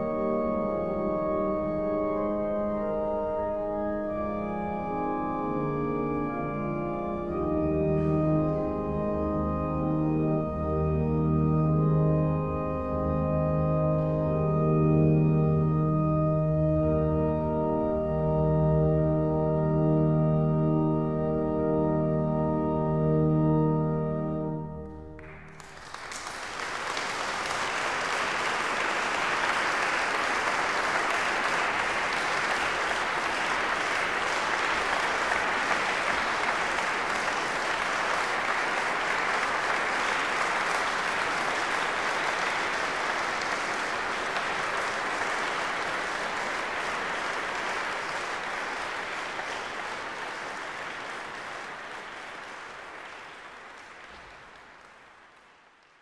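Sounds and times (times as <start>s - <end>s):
pipe organ chord: 0.0s - 26.1s, 27.0s - 52.0s
audience applauding: 25.2s - 56.0s.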